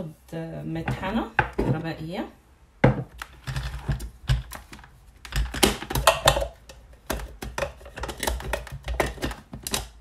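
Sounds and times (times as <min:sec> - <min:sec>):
plastic parts clicking and knocking: 0:02.8 - 0:10.0.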